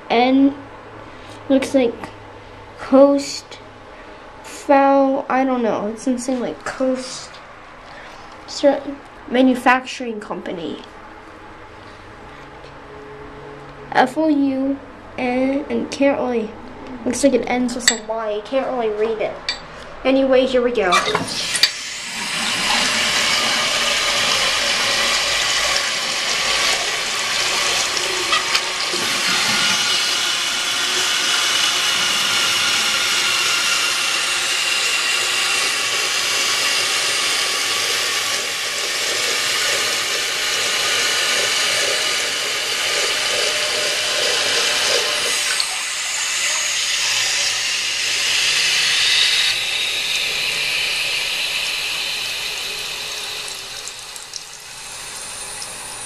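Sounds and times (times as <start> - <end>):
toilet flushing water rushing: 21.0 - 56.0
toilet tank refilling hiss: 21.3 - 56.0.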